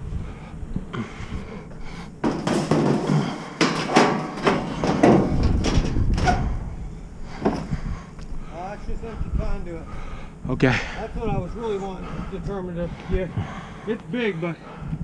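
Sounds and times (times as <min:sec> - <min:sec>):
scrap metal clanking and scraping: 0:02.2 - 0:06.6.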